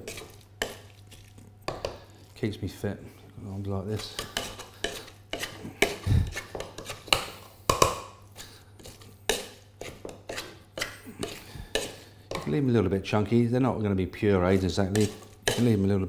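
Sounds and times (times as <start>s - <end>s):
potato masher clanking in saucepan: 14.8s - 15.8s.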